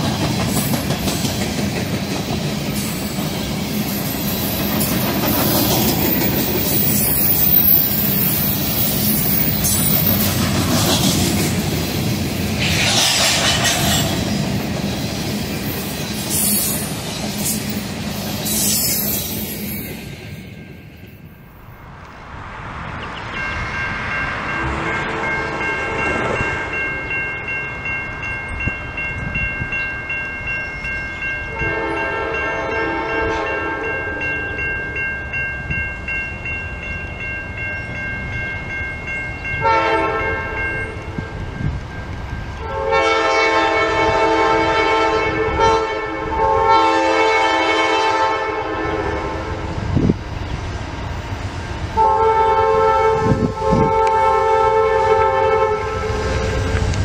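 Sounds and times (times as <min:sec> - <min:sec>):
moving train rumble: 0:00.0 - 0:57.0
steady high tone: 0:21.6 - 0:32.8
train horn blasts: 0:31.5 - 0:34.2, 0:39.6 - 0:40.6, 0:42.6 - 0:49.7, 0:51.9 - 0:56.8.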